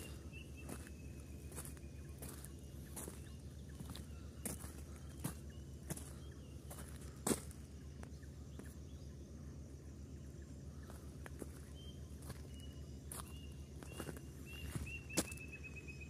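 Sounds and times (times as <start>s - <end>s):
footsteps on stony ground: 0.0s - 8.8s, 10.8s - 15.6s
low steady hum: 0.0s - 16.0s
high bird chirps: 10.9s - 16.0s.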